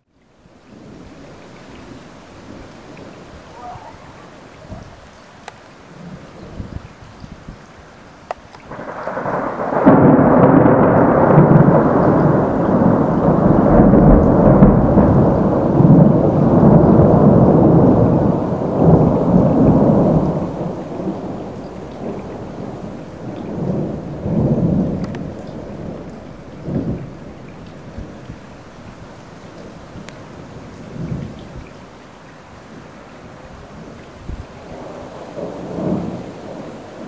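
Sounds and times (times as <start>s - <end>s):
thunder rumbling: 8.6s - 37.0s.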